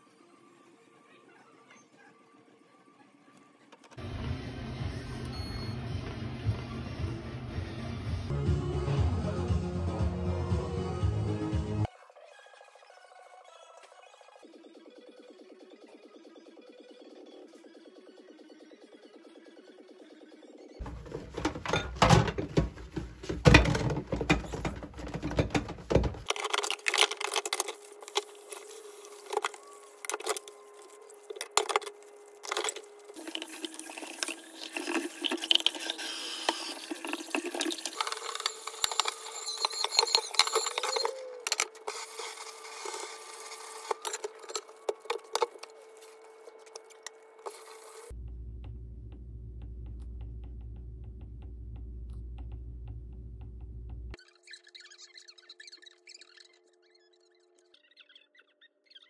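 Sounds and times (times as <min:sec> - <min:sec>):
dishes clinking in metal sink: 0:20.8 - 0:26.2
tap water running: 0:33.2 - 0:41.0.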